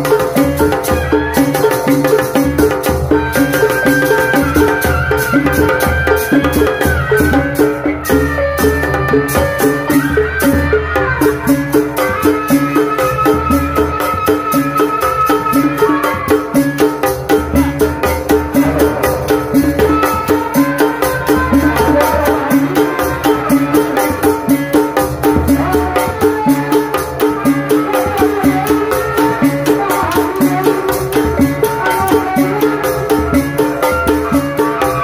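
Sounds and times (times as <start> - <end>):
fast high percussion strokes: 0.0 - 35.0
deep drums: 17.1 - 23.5
stepping melody: 17.3 - 22.7.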